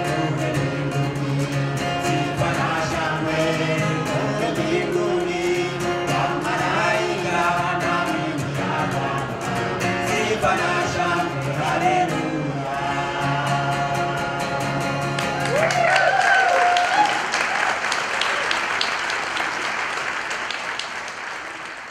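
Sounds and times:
voices singing in harmony: 0.0s - 15.7s
acoustic guitar: 0.0s - 15.9s
applause: 15.1s - 21.9s
crowd cheering: 15.1s - 21.9s.

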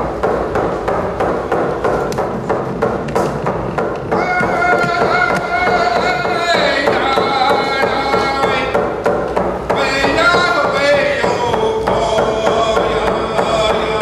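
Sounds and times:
hand drum beating: 1.4s - 14.0s
man singing: 4.2s - 8.9s, 9.7s - 14.0s.

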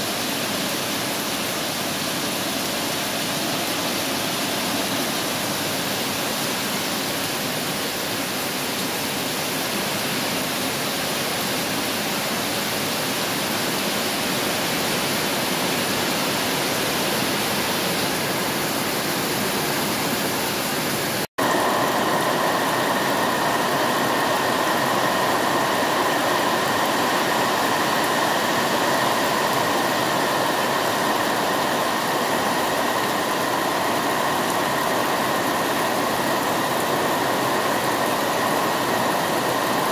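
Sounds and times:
heavy rain falling: 0.0s - 39.9s
water pouring off a roof edge: 0.0s - 39.9s.

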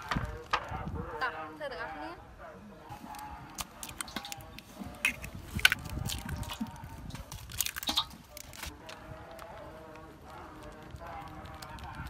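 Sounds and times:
eggshells cracking: 3.0s - 12.0s.

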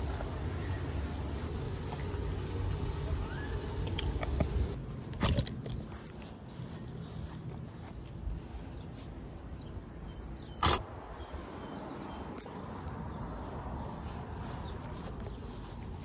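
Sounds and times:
outdoor background noise: 0.0s - 16.0s
footsteps on grass: 5.1s - 10.3s, 11.5s - 16.0s.

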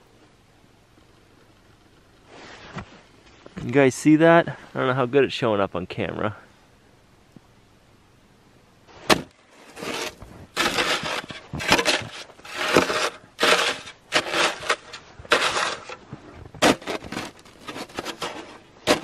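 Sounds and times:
snow shovel scraping frozen snow: 2.3s - 3.0s, 9.0s - 19.0s
shovel knocking: 9.1s - 16.0s, 16.6s - 19.0s.

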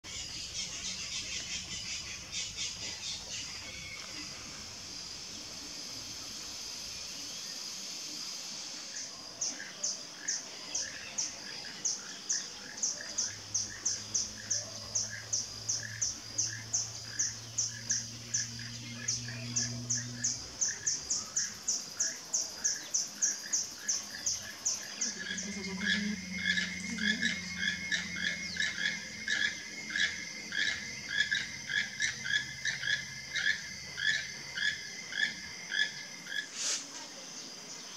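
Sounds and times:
high insect hiss: 0.1s - 37.9s
toucan croaking calls: 11.8s - 36.7s.

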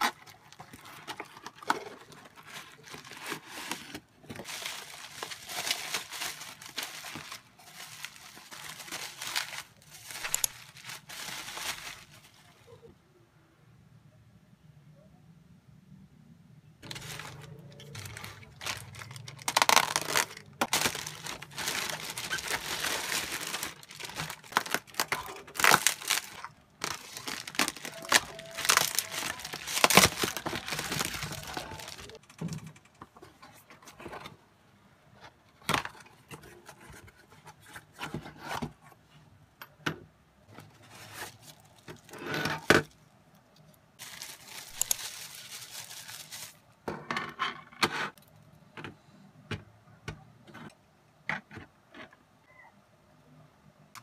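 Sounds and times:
plastic packaging crinkling and tearing: 0.0s - 12.8s, 16.8s - 32.2s, 40.6s - 43.0s, 44.0s - 46.7s
scattered clicks and knocks: 32.2s - 33.3s.

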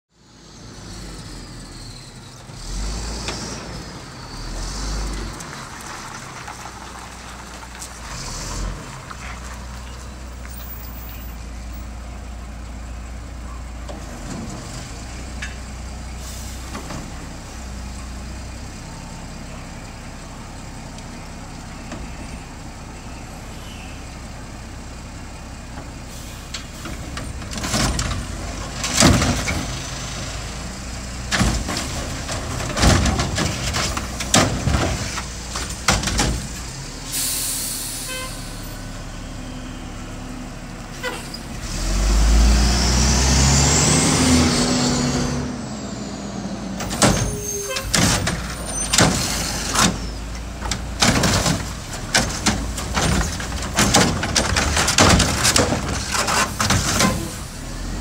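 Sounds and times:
diesel engine running: 0.2s - 58.0s
air brake hisses: 26.1s - 26.8s, 37.1s - 38.7s
loud clatter: 46.8s - 57.5s.

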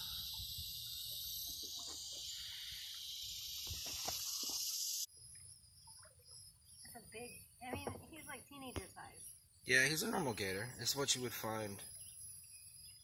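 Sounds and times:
high-pitched insect drone: 0.0s - 5.2s.

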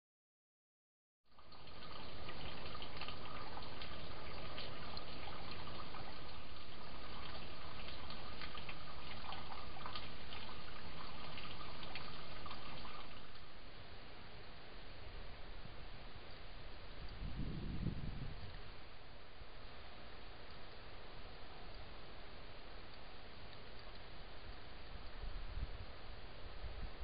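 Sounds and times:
small crackles: 1.3s - 13.6s, 20.3s - 26.0s
stream water trickling: 1.3s - 27.0s.

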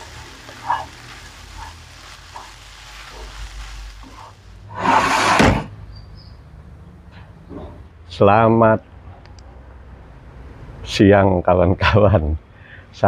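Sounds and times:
faint sizzling in a wok: 0.0s - 4.9s
brief loud rush of noise: 4.7s - 5.8s.

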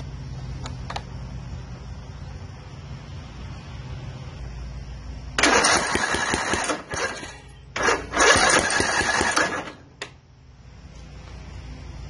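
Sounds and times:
engine cranking on starter: 5.4s - 10.0s.

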